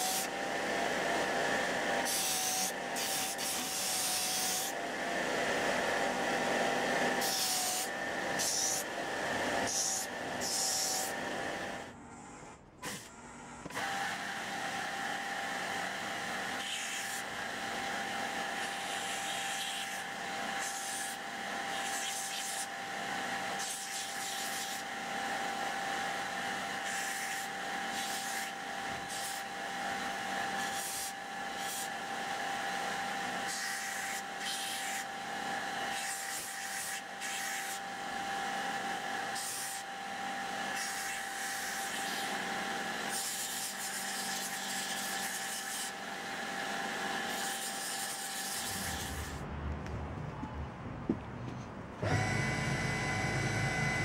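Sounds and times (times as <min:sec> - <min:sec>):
belt grinder humming: 0:52.0 - 0:54.0.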